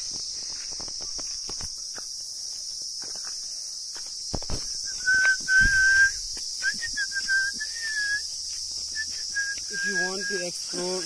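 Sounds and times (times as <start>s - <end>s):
footsteps on stony dirt: 0.0s - 11.0s
insect chorus: 0.0s - 11.0s
long whistled note: 4.9s - 8.2s.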